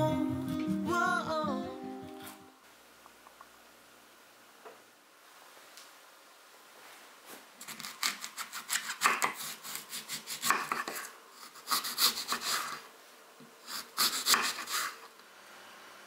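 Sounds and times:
knife cutting crisp apple on board: 7.6 - 12.8, 13.7 - 15.0.

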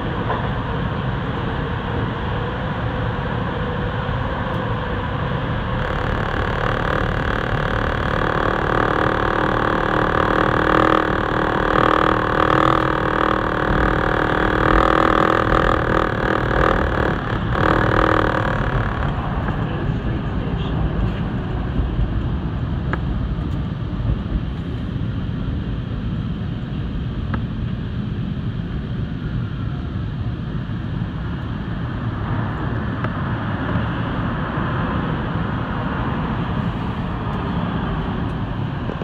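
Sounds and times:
train running gear whine: 0.0 - 25.8.

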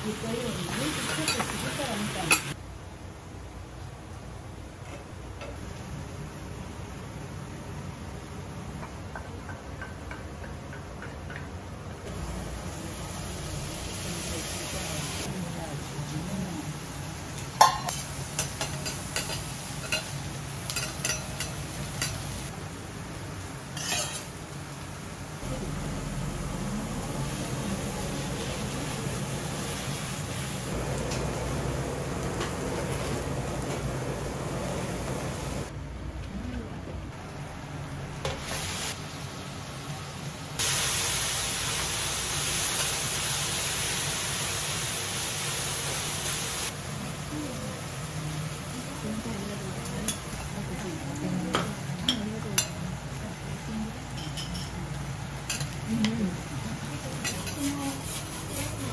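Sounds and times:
noodles sizzling on griddle: 0.0 - 2.6, 12.0 - 35.7, 38.2 - 58.9
metal spatulas clacking on griddle: 20.7 - 22.2, 23.8 - 24.3
steady low hum: 25.2 - 38.2.

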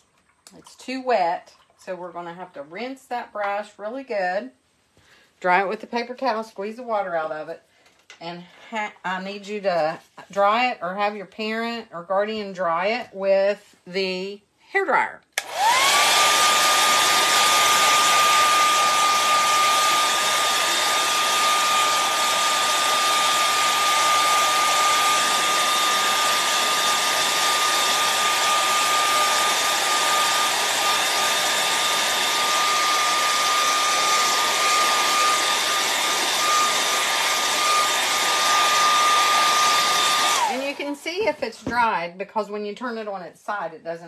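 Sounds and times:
hair dryer running: 15.4 - 41.9.

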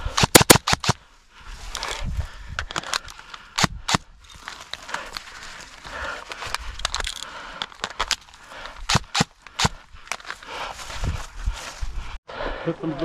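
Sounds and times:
sharp cracks: 0.0 - 1.0, 6.4 - 10.4
small crackles: 2.6 - 10.6
footsteps through brush: 4.2 - 12.2.

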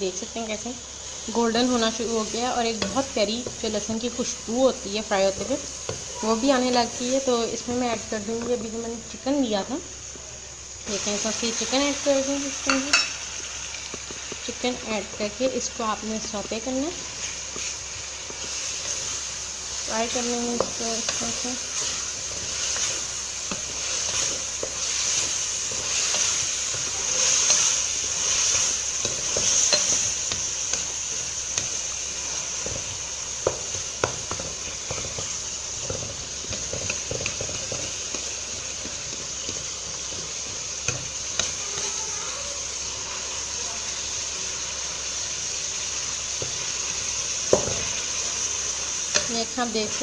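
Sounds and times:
chicken sizzling in oil: 0.0 - 50.0
wooden spatula stirring and scraping: 13.8 - 42.0.

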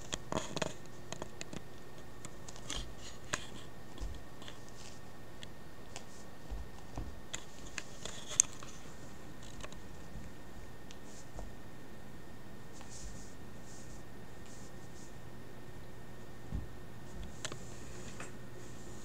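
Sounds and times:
kitten scratching and rustling: 2.3 - 5.1, 5.9 - 10.2.

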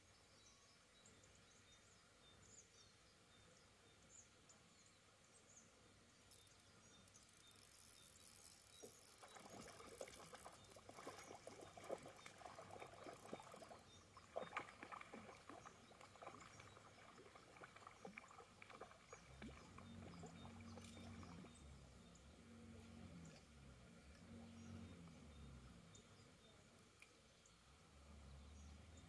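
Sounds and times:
low hum: 8.7 - 29.0.

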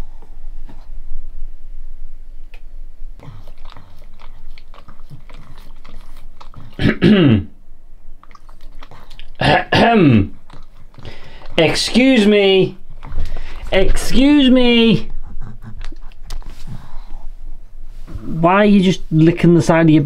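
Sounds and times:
dog licking and smacking: 3.2 - 7.0, 8.2 - 17.0
dog vocal sounds: 3.2 - 7.1, 8.1 - 17.6.

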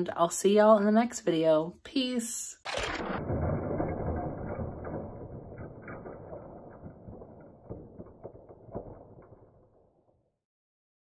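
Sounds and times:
plastic toy pieces rustling and clicking: 2.7 - 10.3.

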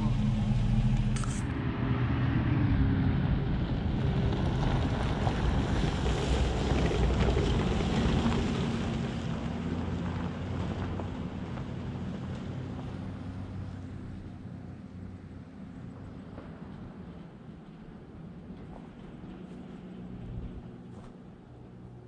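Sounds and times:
truck engine idling: 0.0 - 1.5.

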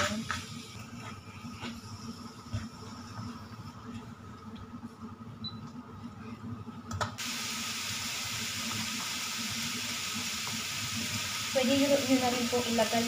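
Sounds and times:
meat sizzling in a wok: 7.2 - 13.0.

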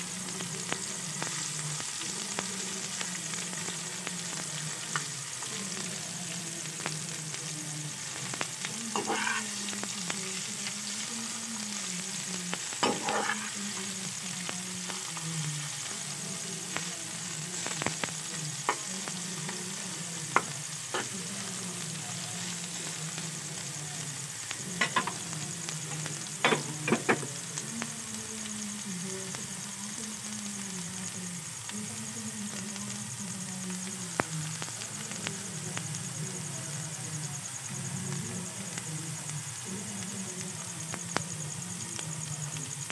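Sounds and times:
sprouts sizzling in oil: 0.0 - 42.9
metal spatula scraping pan: 8.9 - 9.6, 12.8 - 13.6.

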